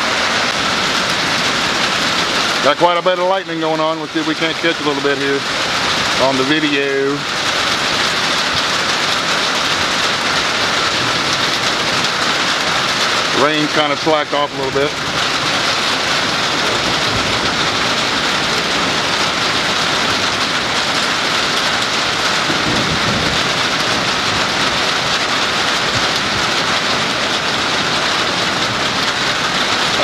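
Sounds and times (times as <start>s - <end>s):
steady rain: 0.0s - 30.0s
thunder rumble: 7.4s - 30.0s.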